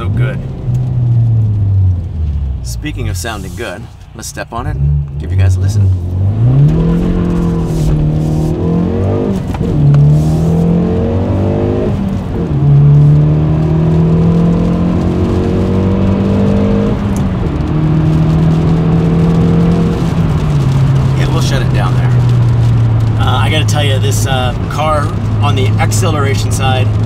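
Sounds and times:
car engine accelerating through gears: 0.0 - 3.8, 4.7 - 27.0.

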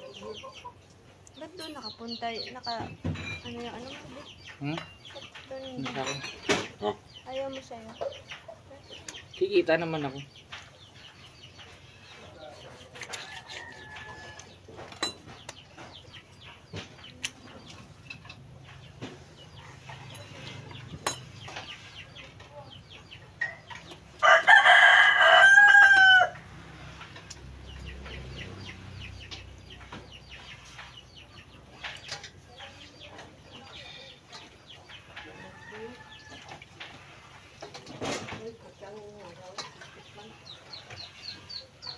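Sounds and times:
rooster crowing: 24.2 - 26.4, 35.2 - 36.3.

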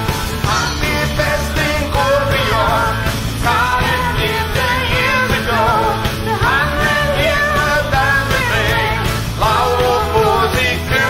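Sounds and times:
live rock band playing: 0.0 - 11.0
person singing: 0.0 - 11.0.

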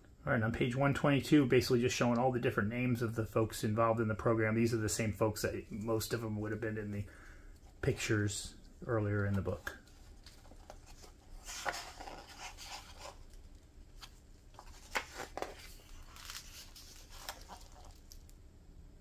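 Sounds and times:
book page turning: 9.0 - 18.4.

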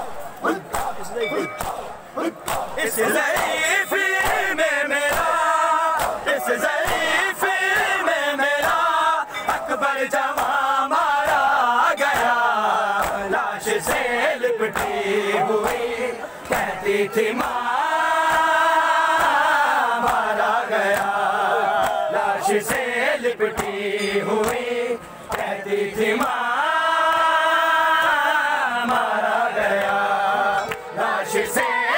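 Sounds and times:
men chanting in unison: 0.0 - 31.9
hands slapping chests: 0.4 - 3.6, 5.1 - 5.3, 6.0 - 7.0, 14.7 - 15.0, 17.3 - 17.6, 20.0 - 20.3, 20.9 - 21.2.

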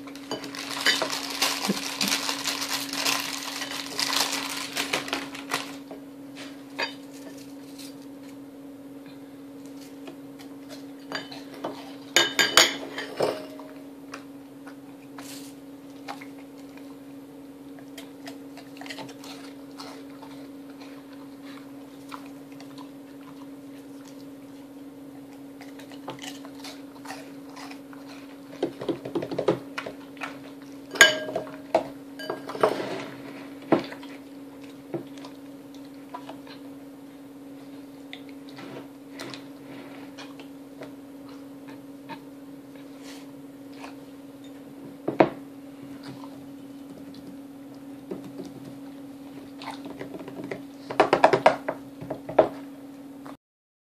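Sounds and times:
steady low hum: 0.0 - 53.4
glass and ceramic clinking on table: 12.2 - 13.6, 30.9 - 31.5.

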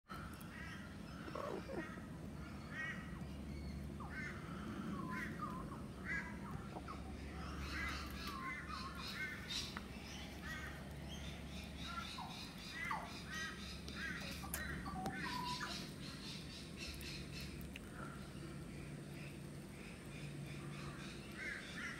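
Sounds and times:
low steady hum: 0.1 - 21.9
crows cawing: 0.4 - 3.1, 4.0 - 9.7.

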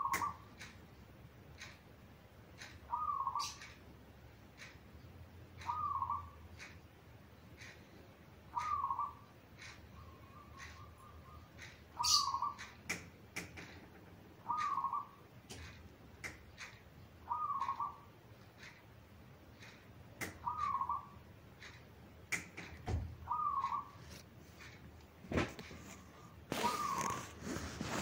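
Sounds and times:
sharp clicks: 0.1 - 3.9, 7.5 - 17.0, 17.6 - 23.0
dove cooing: 2.9 - 3.6, 5.7 - 6.3, 8.6 - 9.2, 14.4 - 15.2, 17.3 - 18.0, 23.3 - 24.0, 26.5 - 28.0.

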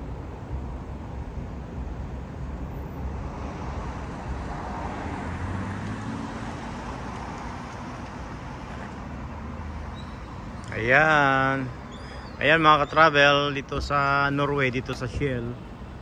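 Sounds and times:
road traffic rumble: 0.0 - 16.0
vehicle engine passing: 2.8 - 10.1.

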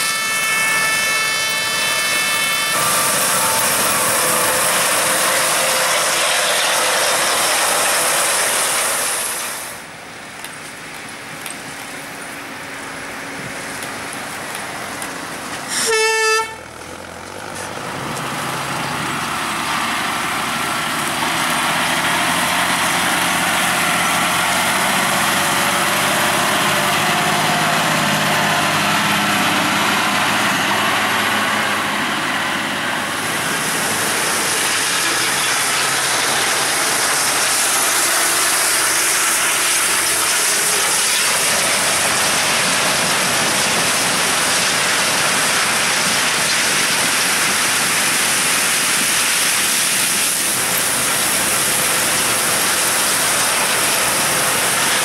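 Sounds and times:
vehicle horn toot: 0.0 - 5.9, 15.7 - 16.7
harvest machinery rushing: 0.0 - 9.9, 16.8 - 55.0
tractor engine running: 0.0 - 55.0.

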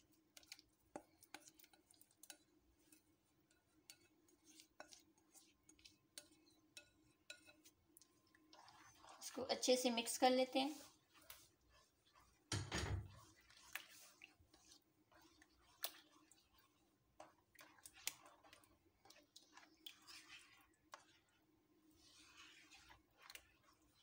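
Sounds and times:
spatula stirring thick pudding: 0.0 - 24.0.

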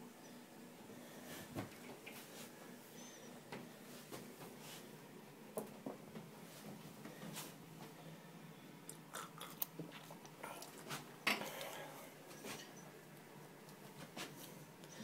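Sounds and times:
person chewing: 8.9 - 10.9.

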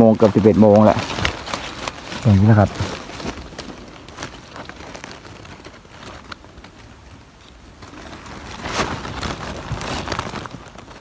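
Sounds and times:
dry leaves rustling underfoot: 0.0 - 11.0.

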